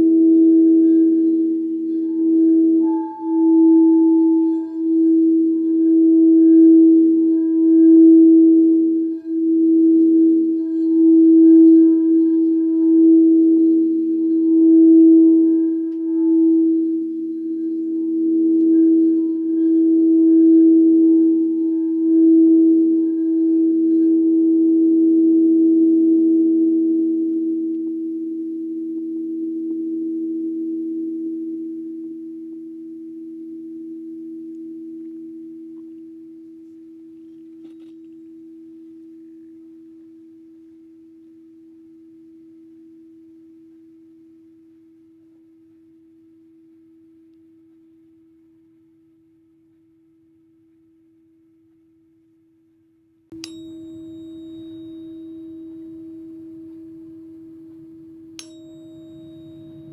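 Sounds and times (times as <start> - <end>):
struck metal instrument ringing: 53.4 - 59.9.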